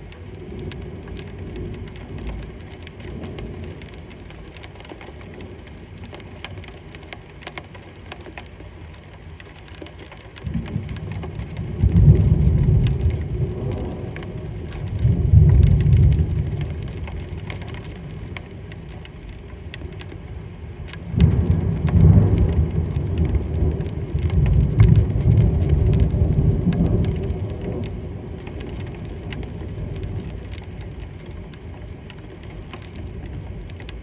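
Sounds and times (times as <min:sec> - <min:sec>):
steady rain falling: 0:00.0 - 0:34.0
water drips ticking: 0:00.0 - 0:34.0
deep thunder rumble: 0:10.4 - 0:18.4, 0:21.0 - 0:32.0.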